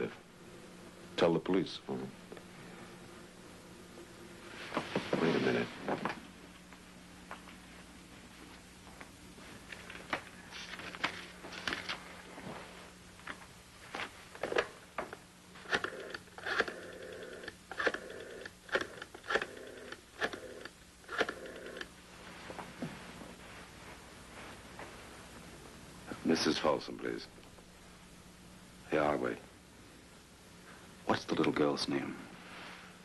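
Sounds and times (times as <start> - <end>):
rotary dial clicking and whirring: 15.7 - 21.9.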